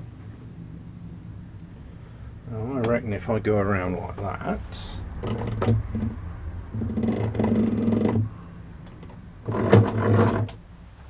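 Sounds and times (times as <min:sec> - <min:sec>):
lathe mechanical whirring: 0:05.2 - 0:10.6.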